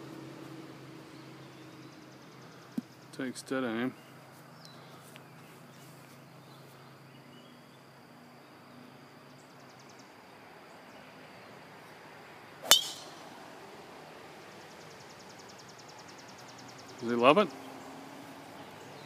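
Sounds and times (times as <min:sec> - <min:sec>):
insects chirring: 0:01.0 - 0:19.0
golf club striking ball: 0:12.6 - 0:13.3.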